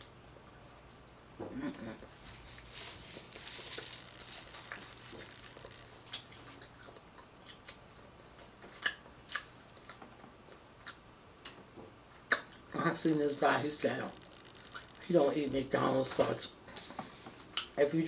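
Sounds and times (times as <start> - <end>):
person chewing food: 0.0 - 12.7, 14.2 - 15.0
mouth clicks and smacks: 4.1 - 12.8, 13.8 - 15.1, 16.7 - 17.8.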